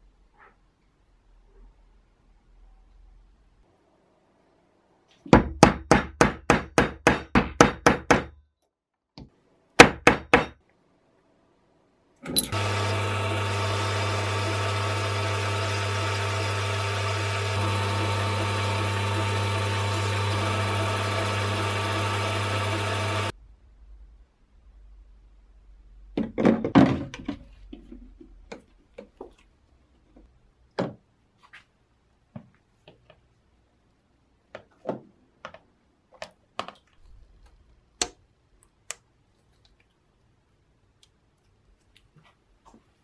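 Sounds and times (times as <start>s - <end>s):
electric motor running: 12.5s - 23.3s.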